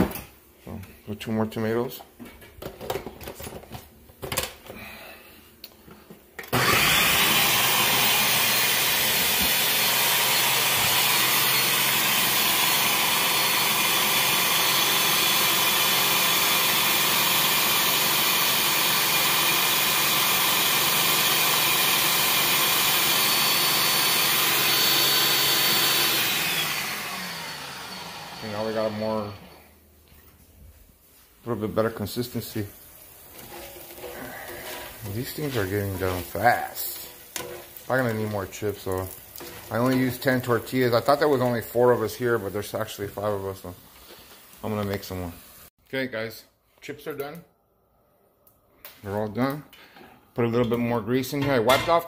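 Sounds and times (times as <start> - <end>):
blender motor running: 6.5 - 29.7.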